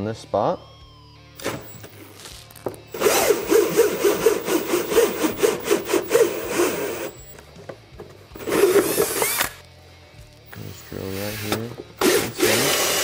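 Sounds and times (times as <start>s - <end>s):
drill hole saw grinding plastic: 2.9s - 7.3s, 8.4s - 9.6s, 11.2s - 13.0s.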